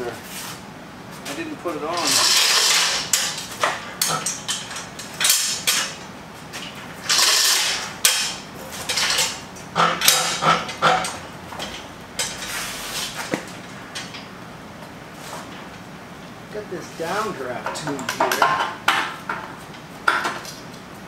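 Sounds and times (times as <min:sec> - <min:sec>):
hoist chain rattling: 0:01.9 - 0:06.0, 0:07.0 - 0:11.2
metal clinking and scraping: 0:01.9 - 0:14.3.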